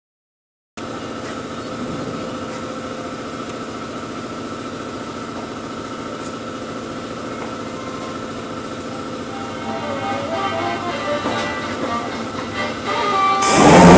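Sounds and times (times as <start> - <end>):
power sander on sheet metal: 11.7 - 13.9.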